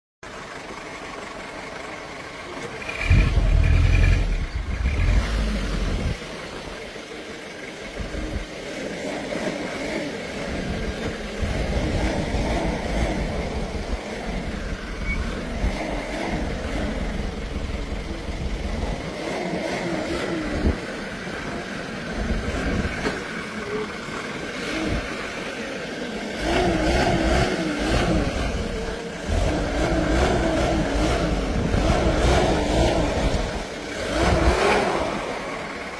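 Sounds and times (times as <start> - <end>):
engines revving unevenly: 1.6 - 35.9
loud low rumble: 2.9 - 6.2.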